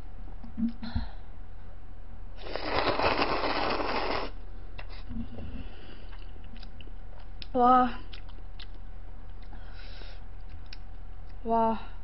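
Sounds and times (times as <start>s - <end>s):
person slurping noodles: 2.4s - 4.4s
quiet chewing: 4.8s - 11.4s.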